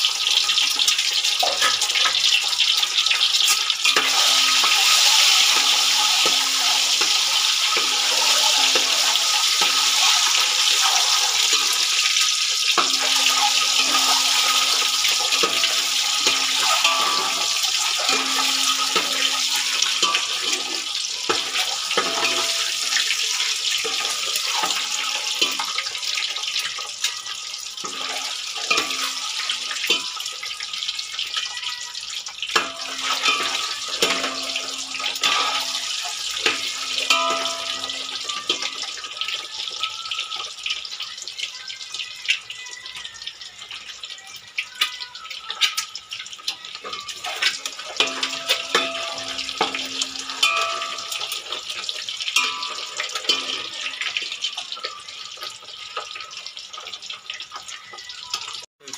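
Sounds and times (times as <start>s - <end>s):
eggs sizzling in hot oil: 0.0s - 58.9s
metal ladle scraping a pot: 3.4s - 25.9s.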